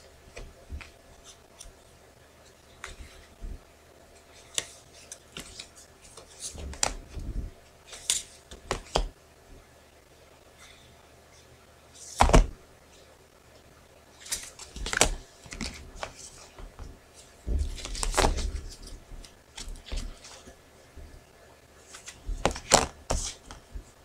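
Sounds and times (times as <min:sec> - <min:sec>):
cards tapping and clicking: 0:04.4 - 0:07.2, 0:07.9 - 0:09.1, 0:14.2 - 0:16.9, 0:17.6 - 0:20.5, 0:21.9 - 0:23.8.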